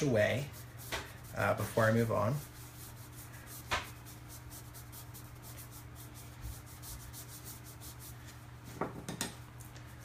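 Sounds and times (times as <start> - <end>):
dry brush scratching: 0.0 - 8.5.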